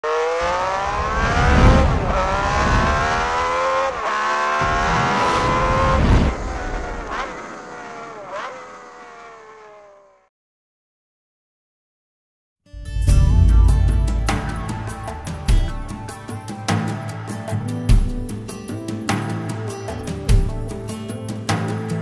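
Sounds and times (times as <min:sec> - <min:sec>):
racing car engine revving: 0:00.0 - 0:10.3.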